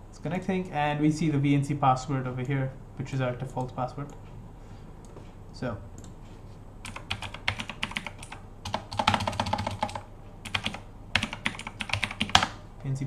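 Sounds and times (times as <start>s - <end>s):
computer keyboard typing: 6.8s - 12.6s.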